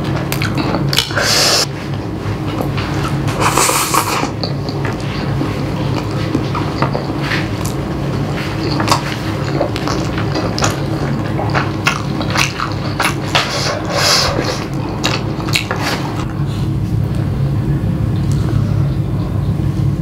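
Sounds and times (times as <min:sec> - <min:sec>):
steady low hum: 0:00.0 - 0:20.0
slurping noodles: 0:01.0 - 0:01.7, 0:03.3 - 0:04.5, 0:08.3 - 0:16.3
wet chewing: 0:02.6 - 0:16.4.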